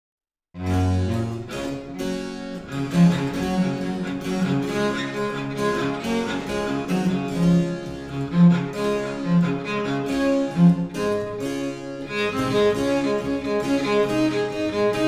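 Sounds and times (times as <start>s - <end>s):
cello playing bowed line: 0.6s - 15.0s
harpsichord plucked notes: 0.6s - 15.0s.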